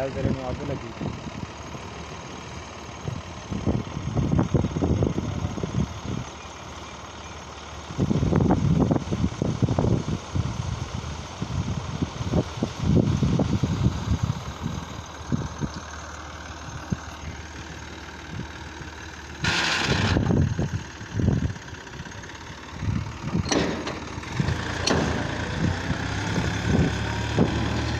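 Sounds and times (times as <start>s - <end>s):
diesel tractor idling: 0.0s - 27.9s
low thumps: 22.9s - 27.8s.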